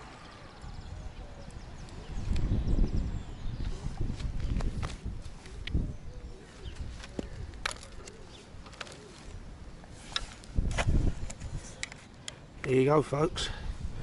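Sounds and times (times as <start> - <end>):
fish and tackle clicks and rustles: 6.4 - 12.8.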